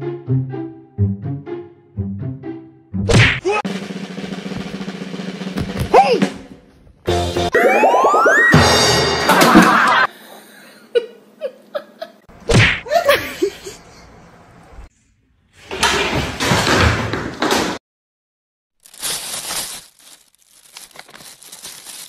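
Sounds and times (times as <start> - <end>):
clatter and rustling: 18.9 - 22.0.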